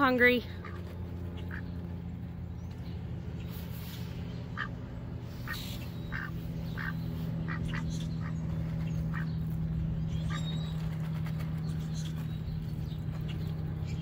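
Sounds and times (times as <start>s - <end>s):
steady low hum: 0.0s - 14.0s
ducks quacking: 0.4s - 2.3s, 3.5s - 11.2s.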